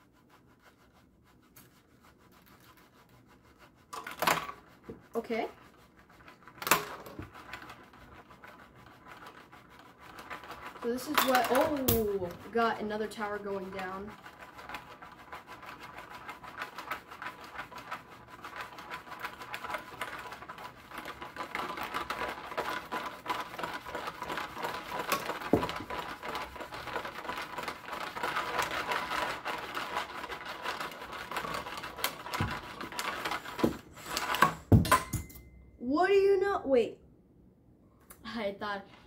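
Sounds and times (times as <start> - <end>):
toy brick towers rattling: 10.5 - 12.4, 18.6 - 34.5.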